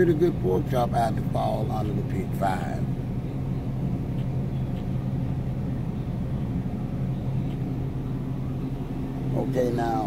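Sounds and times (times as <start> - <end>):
refrigerated display case humming: 0.0 - 10.0.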